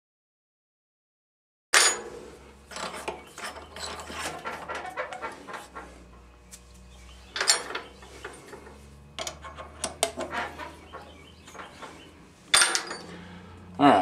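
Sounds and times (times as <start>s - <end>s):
metallic clicks and scrapes: 1.8s - 13.3s.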